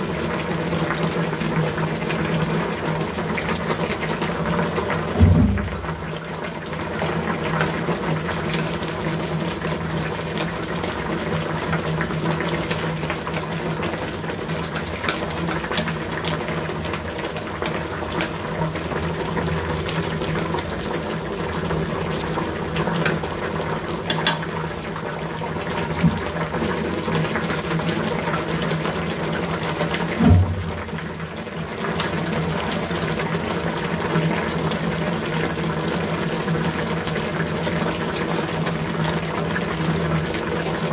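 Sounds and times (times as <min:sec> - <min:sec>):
soup bubbling in a pan: 0:00.0 - 0:40.9
knock: 0:05.2 - 0:06.2, 0:30.2 - 0:30.8.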